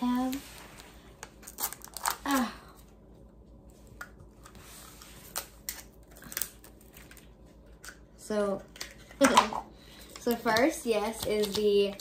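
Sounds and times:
plastic wrapping crinkling: 4.4s - 7.9s.

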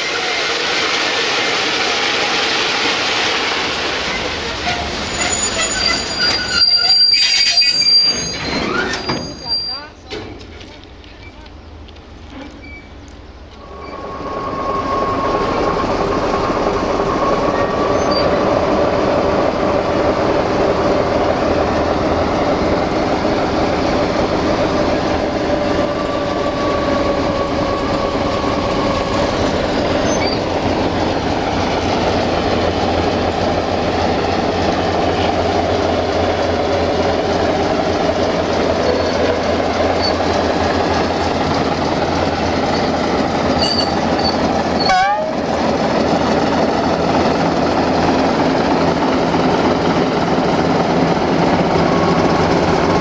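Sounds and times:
train running with whining tone: 0.0s - 53.0s
quick rising squeaks: 4.1s - 9.9s, 12.3s - 13.0s, 13.6s - 16.2s, 17.3s - 18.5s, 28.7s - 30.6s, 38.8s - 40.4s, 42.6s - 45.4s.

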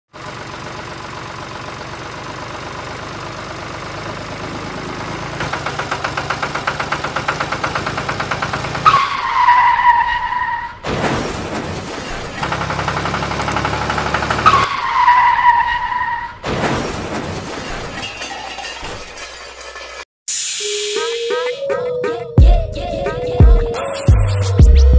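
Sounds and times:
tractor engine chugging: 0.1s - 9.3s, 12.1s - 14.7s
noisy crash: 10.8s - 12.4s, 16.4s - 20.6s.

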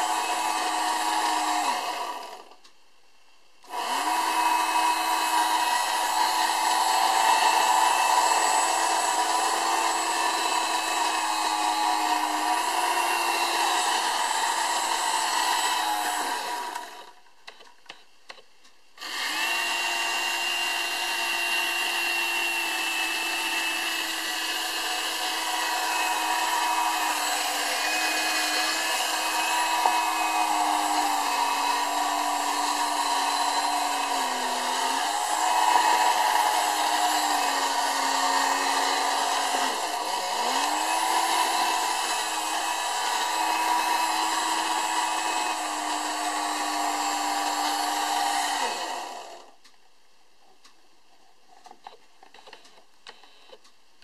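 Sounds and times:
toy hovercraft motor whirring: 19.0s - 49.3s.

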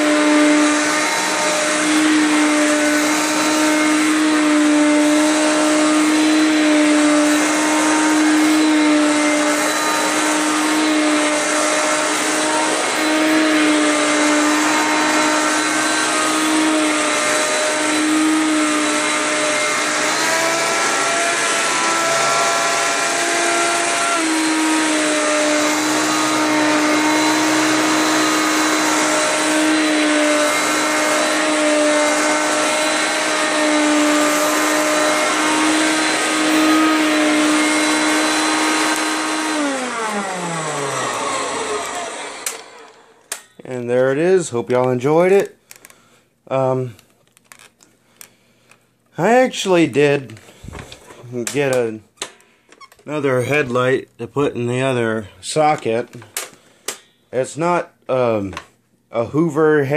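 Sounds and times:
vacuum cleaner running on carpet: 0.0s - 43.2s.

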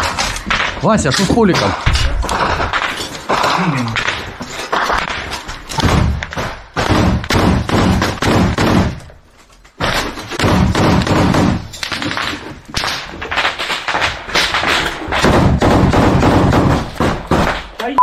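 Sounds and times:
gunfire bursts: 4.8s - 9.0s, 9.8s - 17.7s.

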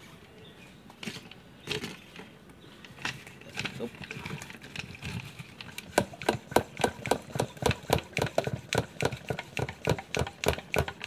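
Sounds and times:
pressure sprayer pump strokes: 3.6s - 11.0s.

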